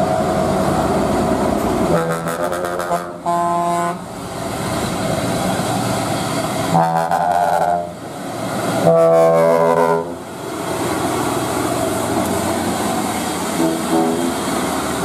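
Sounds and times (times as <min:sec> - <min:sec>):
heavy truck engines and tyres: 0:00.0 - 0:15.0
truck air horn blasts: 0:01.9 - 0:04.0, 0:06.7 - 0:07.9, 0:08.8 - 0:10.2, 0:13.5 - 0:14.4.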